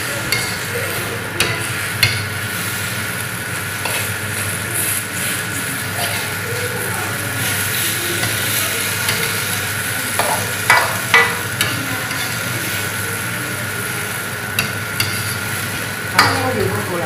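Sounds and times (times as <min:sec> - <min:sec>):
vegetables sizzling in a wok: 0:00.0 - 0:17.0
spatula clinking against wok: 0:00.2 - 0:00.7, 0:08.2 - 0:12.4, 0:14.5 - 0:15.4
spatula scraping a wok: 0:00.2 - 0:13.0, 0:14.5 - 0:16.4.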